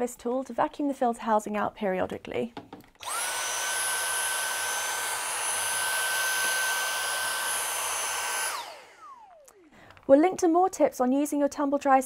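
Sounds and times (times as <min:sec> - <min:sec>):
handheld vacuum motor whine: 0:03.0 - 0:10.0.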